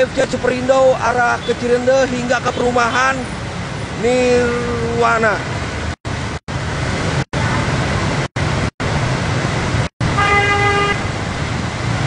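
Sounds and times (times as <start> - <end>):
traffic engines: 0.0 - 12.0
vehicles splashing through water: 0.0 - 12.0
vehicle horn: 10.2 - 11.1.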